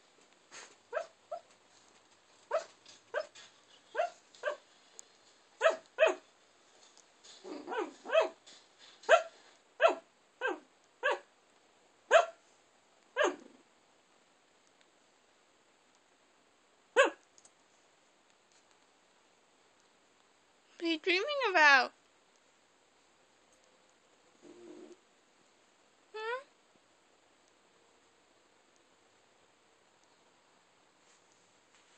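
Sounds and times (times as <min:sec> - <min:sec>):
dog sleep barking: 0:00.5 - 0:01.5, 0:02.5 - 0:04.7, 0:05.6 - 0:06.3, 0:07.4 - 0:08.4, 0:09.0 - 0:11.3, 0:12.1 - 0:12.4, 0:13.2 - 0:13.6, 0:17.0 - 0:17.2.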